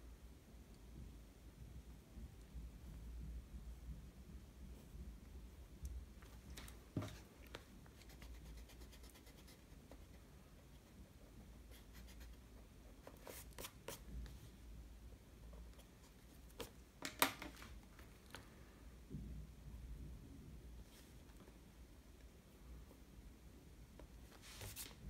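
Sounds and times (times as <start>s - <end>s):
pencil scratching on paper: 8.0s - 11.0s, 11.7s - 14.0s.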